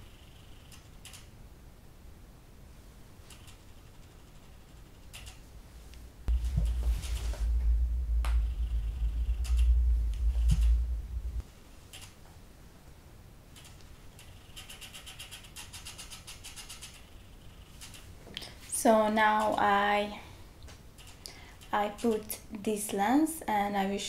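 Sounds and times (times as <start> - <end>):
loud low rumble: 6.2 - 11.5.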